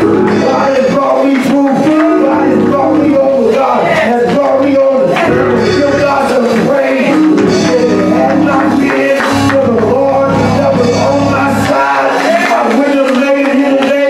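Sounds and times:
low instrumental backing: 0.0 - 13.0
person singing: 0.0 - 14.0.

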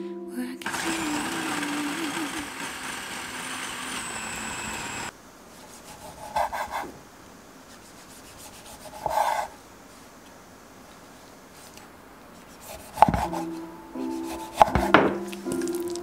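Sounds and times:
food processor motor whining: 0.6 - 5.1.

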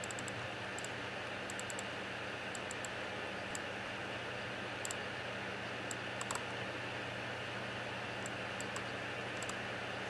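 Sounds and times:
mouse scroll wheel ticks: 0.0 - 1.9, 2.5 - 2.9, 5.9 - 6.4, 8.2 - 9.6.

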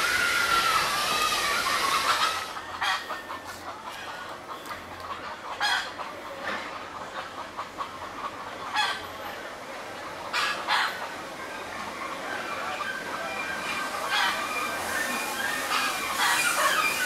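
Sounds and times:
chickens clucking: 0.7 - 17.0.

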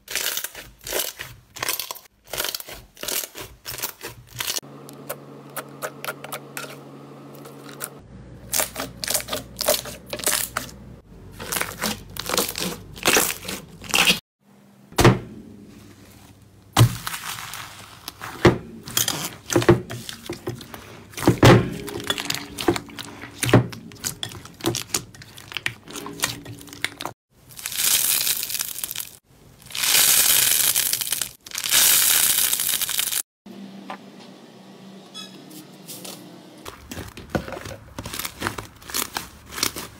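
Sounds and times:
slime hissing rustles: 17.0 - 18.4
slime popping and crackling: 27.5 - 33.2.

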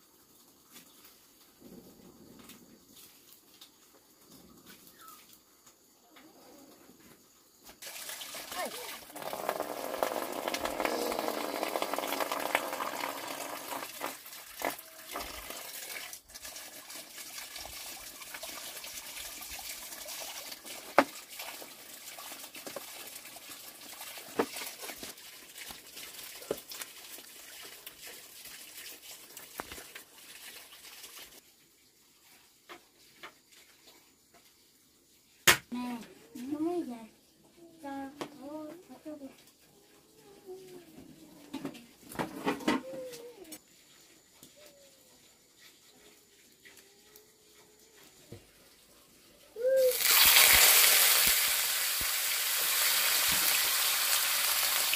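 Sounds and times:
water running into plastic basin: 7.8 - 33.9, 49.6 - 54.9.

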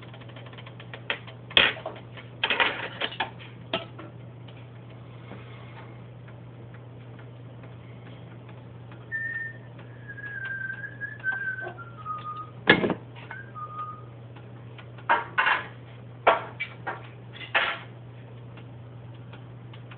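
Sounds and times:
low hum: 3.7 - 15.0
faint ticking: 6.0 - 12.6, 18.3 - 19.9
whistled descending notes: 9.1 - 12.5, 13.4 - 14.1.

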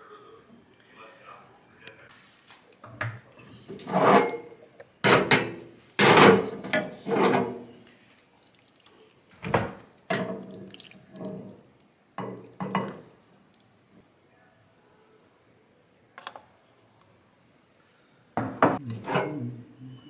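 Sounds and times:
wooden spoon scraping a pan: 6.0 - 8.1.

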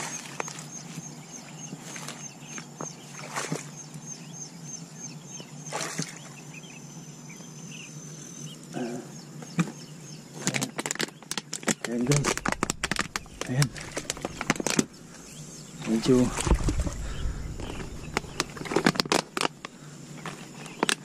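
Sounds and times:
steady high whine: 12.0 - 21.0
footsteps through tall grass: 12.1 - 14.8.

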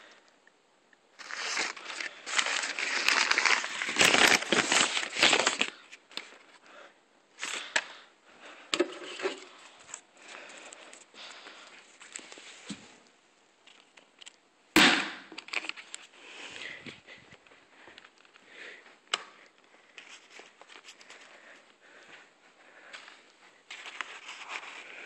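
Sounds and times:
paper crinkling and rustling: 1.2 - 6.6, 15.4 - 16.8, 19.8 - 21.6, 23.7 - 25.0.

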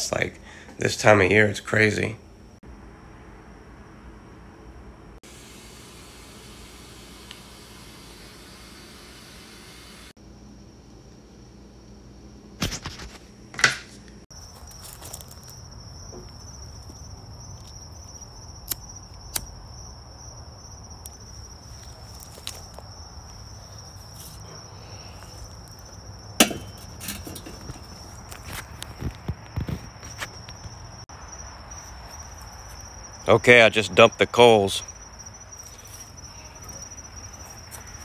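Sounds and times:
crickets trilling: 0.0 - 13.2, 14.3 - 38.0
clicks and knocks of grill: 26.4 - 28.0.

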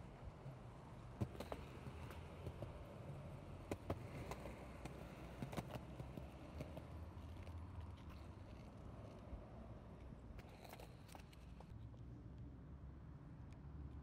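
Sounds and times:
skateboard wheels rumbling on concrete: 0.4 - 11.7
skateboard wheels clacking on cracks: 1.2 - 11.7.

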